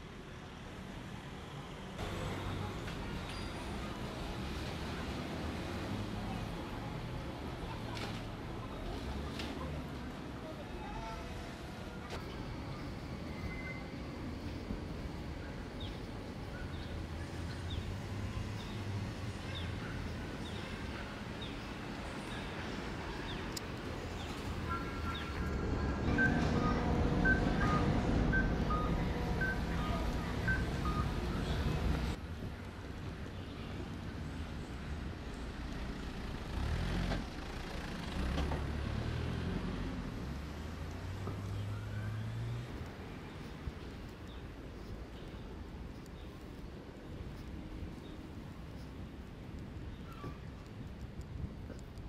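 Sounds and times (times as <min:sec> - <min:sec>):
street background rumble: 0:00.0 - 0:52.0
truck engine rumble: 0:11.6 - 0:33.2.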